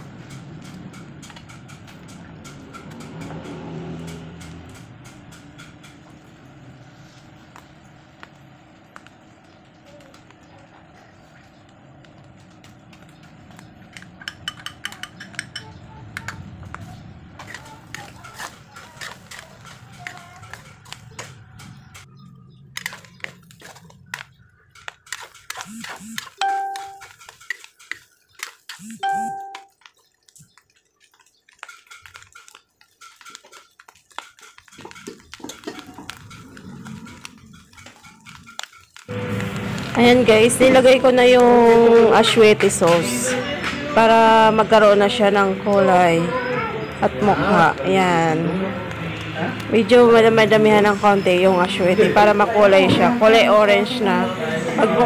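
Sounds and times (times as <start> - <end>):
rough low animal sound: 34.6 - 38.6.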